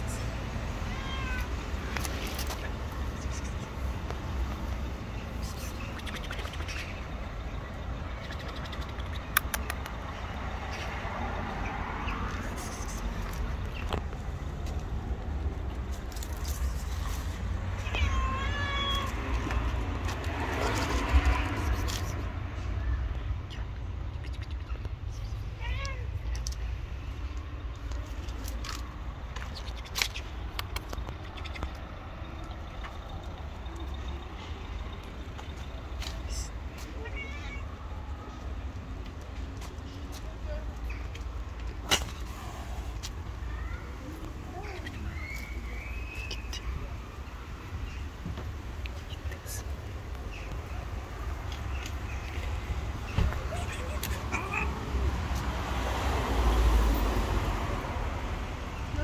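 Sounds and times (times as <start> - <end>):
vehicle passing: 0.0 - 17.9, 18.5 - 25.3, 50.8 - 59.0
traffic rumble: 0.0 - 59.0
sharp clicks: 8.6 - 10.1, 28.5 - 32.6.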